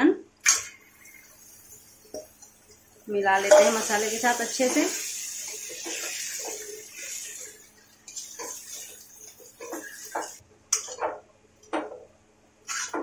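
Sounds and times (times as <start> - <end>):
spoon scraping iron pan: 8.2 - 11.2, 12.7 - 13.0.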